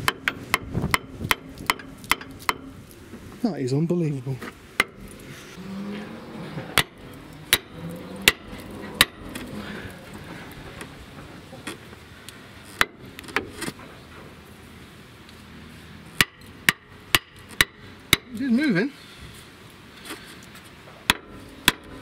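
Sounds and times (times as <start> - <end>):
hammer striking metal: 4.8 - 5.0, 6.8 - 9.4.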